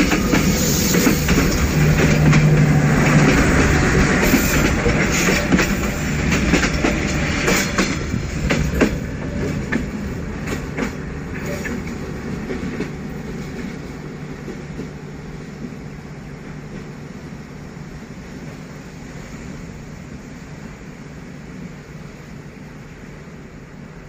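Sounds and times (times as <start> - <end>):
train wheels clicking over rail joints: 0.0 - 15.8
train rumble: 0.0 - 24.0.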